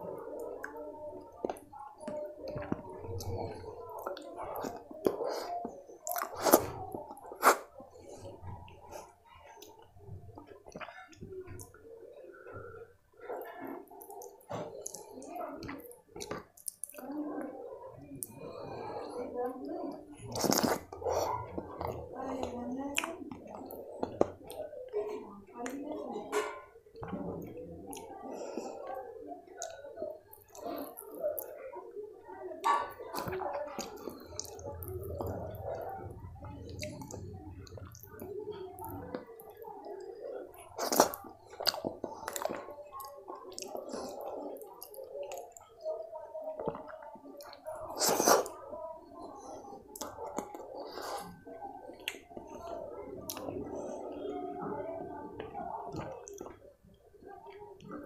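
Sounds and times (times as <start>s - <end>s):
chewing and wet mouth sounds: 0.0s - 58.0s
fingers squelching wet food: 0.4s - 17.5s.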